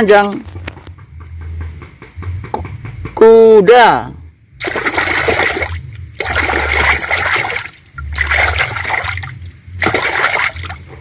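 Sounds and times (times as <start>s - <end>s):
water splashing in plastic tub: 4.6s - 11.0s.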